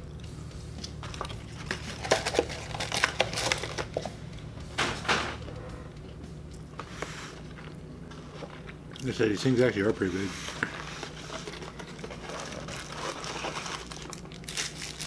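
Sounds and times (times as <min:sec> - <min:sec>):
low room hum: 0:00.0 - 0:15.0
paper wrapper crinkling: 0:01.1 - 0:04.2, 0:09.7 - 0:15.0.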